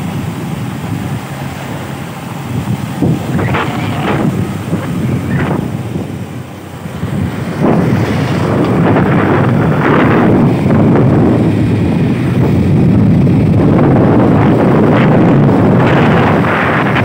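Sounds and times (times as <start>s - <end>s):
road noise: 0.0s - 17.0s
wind buffeting microphone: 0.0s - 17.0s.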